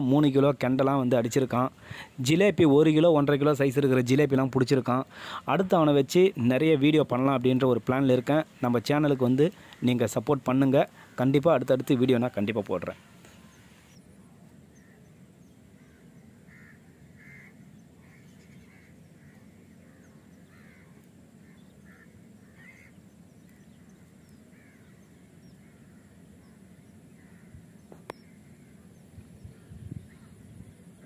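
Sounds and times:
low steady outdoor hum: 0.0s - 31.0s
faint short bird calls: 12.9s - 31.0s.

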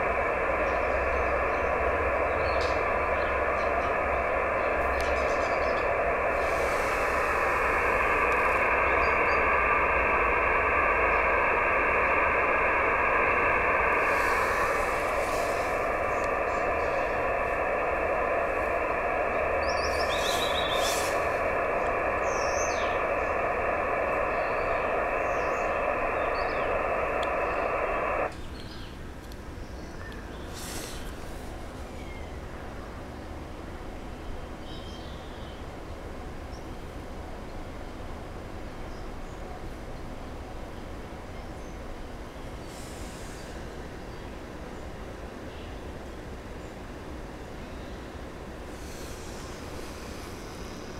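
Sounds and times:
faint steady tones: 0.0s - 28.3s
radio receiver hiss: 0.0s - 28.3s, 30.5s - 31.6s, 44.9s - 50.9s.

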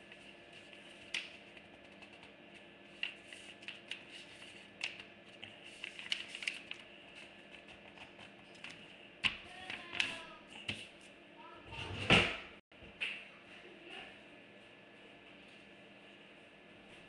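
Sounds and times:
faint steady hum: 0.0s - 11.6s.

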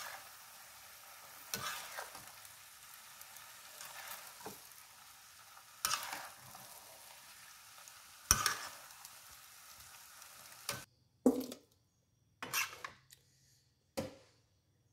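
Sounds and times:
food sizzling in a wok: 0.0s - 10.9s, 12.5s - 12.8s
metal spatula scraping pan: 1.4s - 2.3s, 5.8s - 6.6s, 8.3s - 8.8s, 12.4s - 13.0s.

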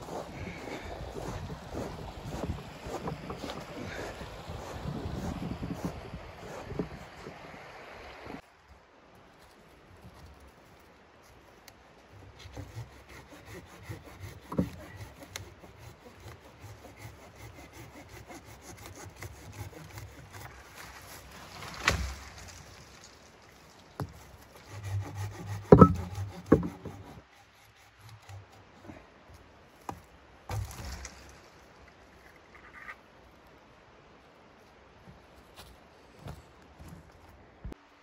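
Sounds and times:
hand saw cutting wood: 0.0s - 7.4s, 12.3s - 22.0s, 24.0s - 28.6s
sharp wooden knocks: 14.2s - 15.0s, 24.0s - 27.1s.

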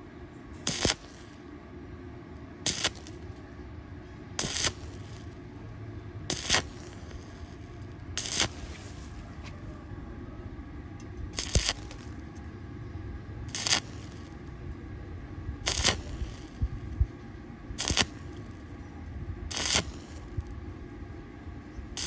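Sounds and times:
welding arc crackling: 0.6s - 1.5s, 2.6s - 3.6s, 4.4s - 9.4s, 11.3s - 12.5s, 13.5s - 14.6s, 15.6s - 17.1s, 17.7s - 21.0s.

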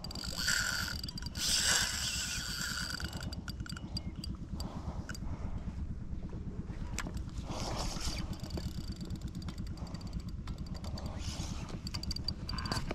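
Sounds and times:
boat engine low rumble: 0.0s - 12.9s.

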